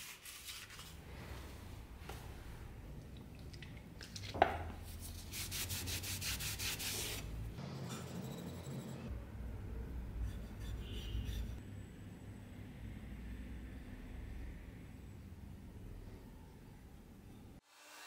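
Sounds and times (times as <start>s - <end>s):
cloth rubbing steel blade: 10.2s - 11.6s.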